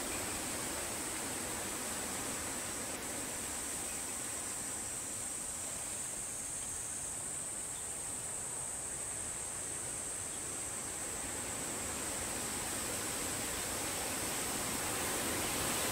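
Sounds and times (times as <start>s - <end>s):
outdoor hiss: 0.0s - 15.9s.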